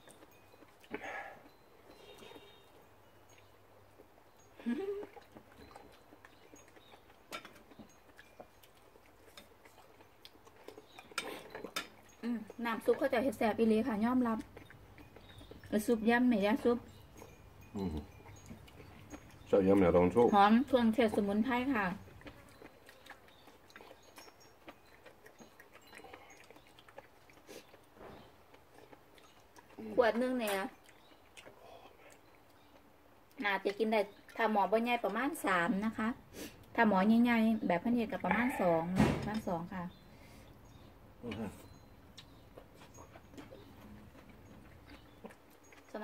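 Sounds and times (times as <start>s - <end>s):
soft chewing: 0.0s - 46.0s
faint bird chirps: 1.0s - 3.6s, 14.9s - 20.8s.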